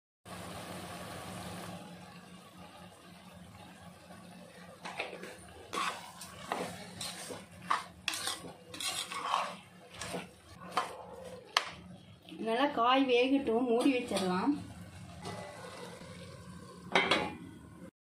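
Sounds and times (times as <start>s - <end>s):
spoon scraping metal pot: 4.8s - 11.5s.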